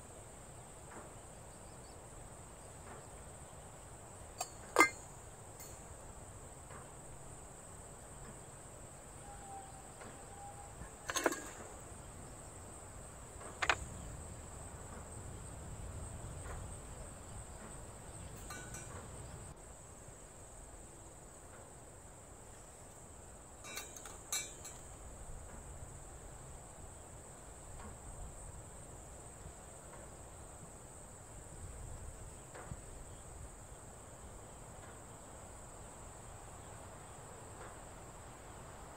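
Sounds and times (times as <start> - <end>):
high-pitched insect trill: 4.1 - 21.4, 22.5 - 37.5
sharp clicks and knocks: 11.1 - 11.8, 13.4 - 13.9.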